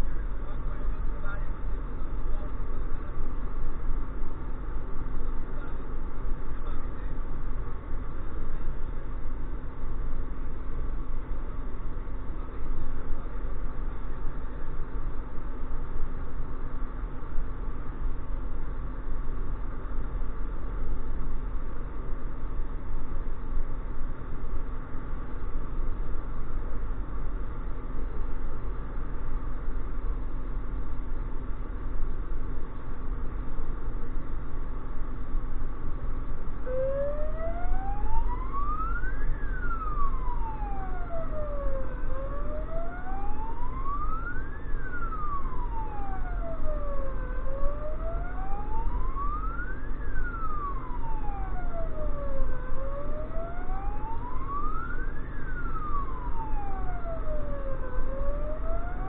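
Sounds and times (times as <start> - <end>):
engine and tyre rumble: 0.0 - 59.0
wailing emergency siren: 36.5 - 59.0.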